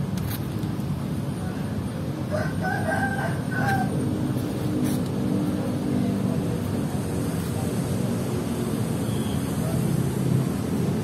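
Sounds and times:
steady low rumble: 0.0 - 11.0
rooster crowing: 2.3 - 4.0.

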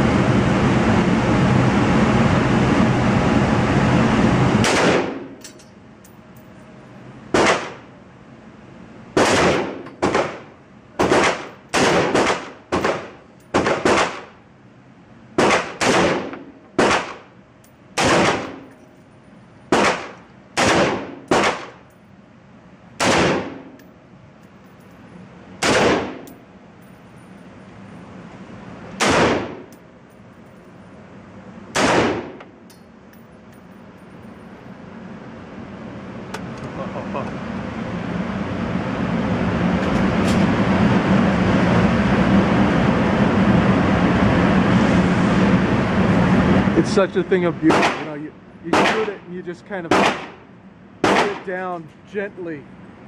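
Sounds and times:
rifle shots echoing indoors: 4.6 - 5.3, 7.3 - 7.8, 9.2 - 10.4, 11.0 - 14.3, 15.4 - 17.2, 18.0 - 18.7, 19.7 - 21.8, 23.0 - 23.7, 25.6 - 26.3, 29.0 - 29.6, 31.8 - 32.4, 48.7 - 49.2, 49.9 - 50.4, 51.0 - 51.4.

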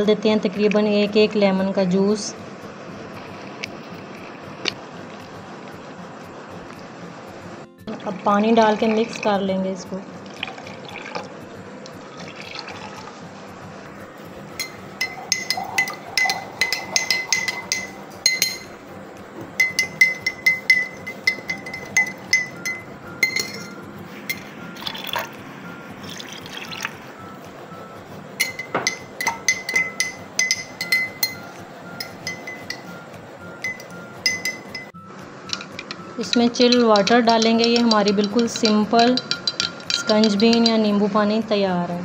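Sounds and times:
spoon clinking against glass: 14.6 - 18.8, 19.6 - 25.4, 28.4 - 40.9.

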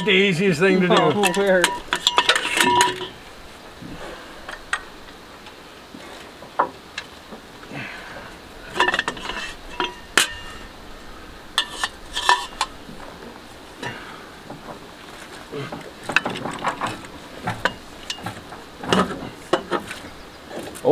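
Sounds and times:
metal tools clinking on metal: 0.0 - 3.4, 8.6 - 10.7, 11.5 - 13.2, 15.1 - 20.9
diesel engine turned by hand: 0.0 - 20.9.

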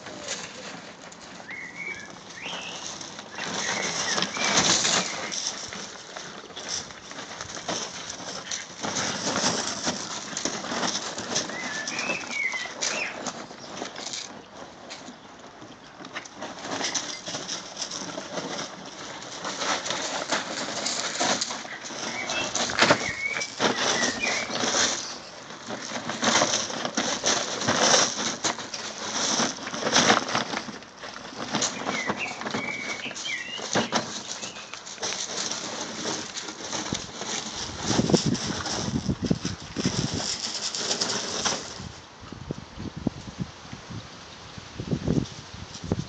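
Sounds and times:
nylon bag rustling on stones: 0.0 - 42.1
gravel crunching under paws: 0.0 - 44.0.

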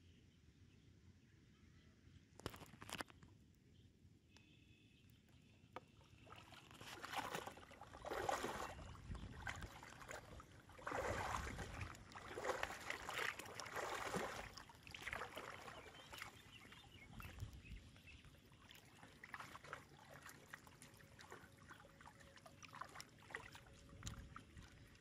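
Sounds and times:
water splashing and sloshing: 5.8 - 25.0.

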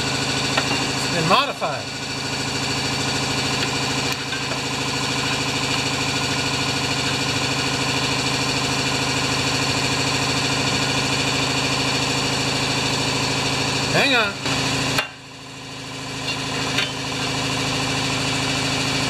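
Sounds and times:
machine humming and whirring: 0.0 - 19.0.

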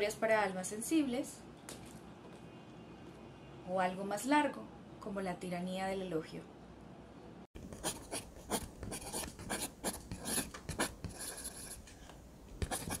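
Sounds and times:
scratchy rubbing strokes: 12.6 - 13.0.

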